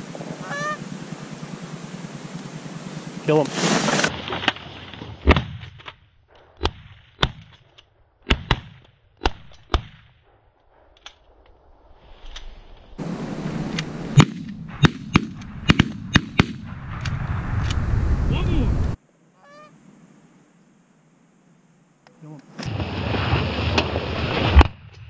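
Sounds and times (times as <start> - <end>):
shotgun blasts: 14.1 - 16.7.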